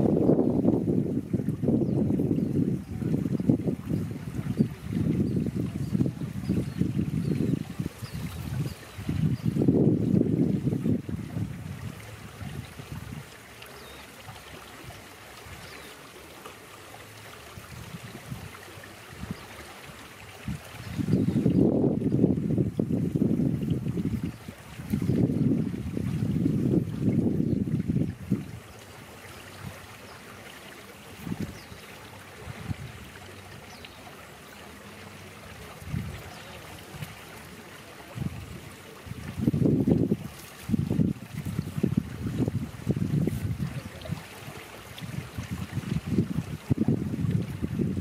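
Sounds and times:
wind rumble on microphone: 0.0 - 13.4, 17.5 - 30.0, 31.1 - 33.8, 35.4 - 37.4, 38.0 - 48.0
even outdoor hiss: 0.0 - 48.0.

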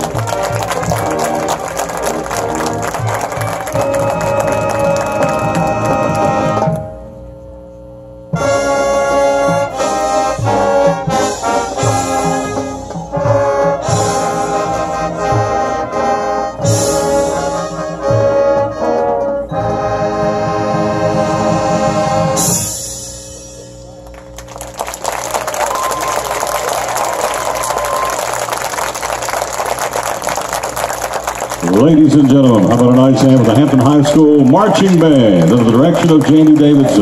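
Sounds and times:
brass playing sustained chords: 0.0 - 23.7.

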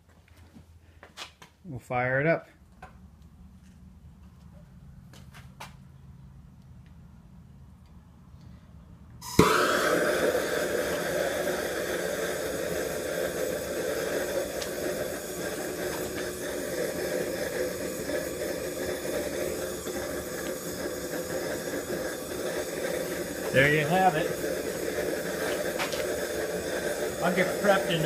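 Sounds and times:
gas torch flame hissing: 9.2 - 28.0
gas torch lighting pop: 9.2 - 28.0.

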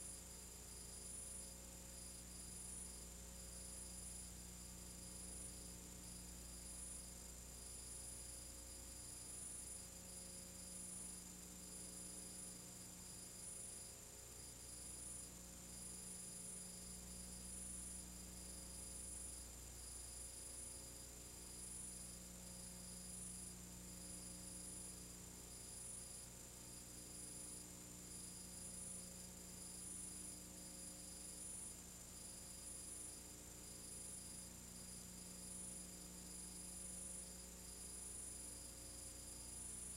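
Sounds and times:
faint electrical hum: 0.0 - 39.9.

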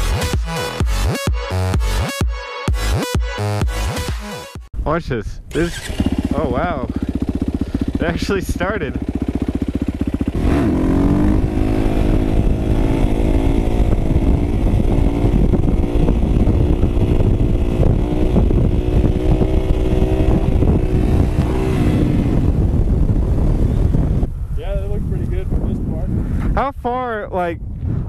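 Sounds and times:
dirt bike engine revving: 5.5 - 24.3.

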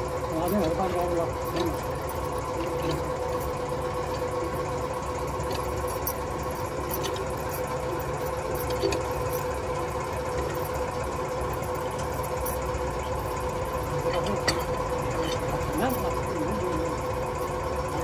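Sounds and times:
machine humming and rumbling: 0.0 - 18.0.

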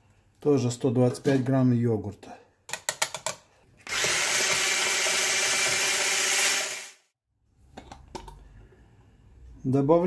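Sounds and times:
electric hand blender running: 3.9 - 7.0.

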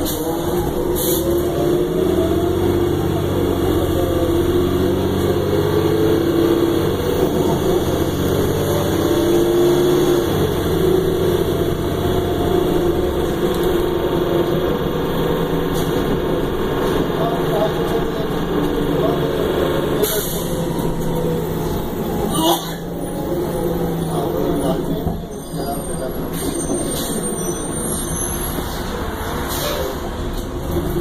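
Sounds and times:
bus engine under load: 0.0 - 31.0
road noise rumble: 0.0 - 31.0.

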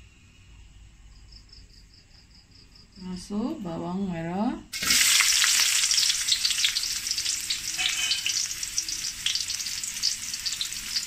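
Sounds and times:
onion sizzling in hot oil: 4.7 - 11.0
oil spitting crackles: 4.8 - 11.0.

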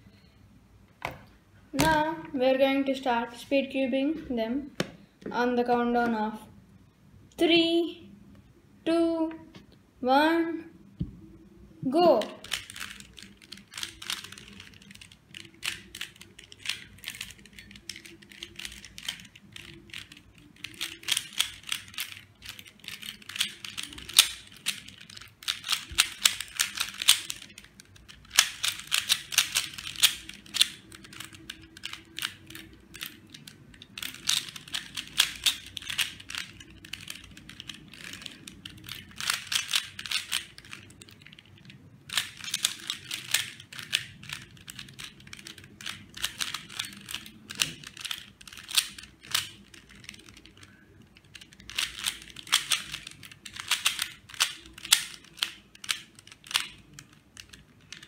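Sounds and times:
rapid plastic clicking of cube: 12.2 - 58.0.

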